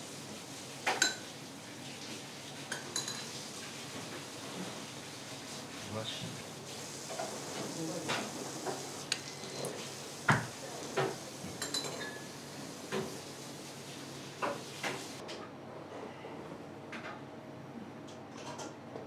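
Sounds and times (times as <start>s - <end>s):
dishes and utensils clinking: 0.8s - 1.3s, 2.7s - 3.4s, 8.1s - 12.4s.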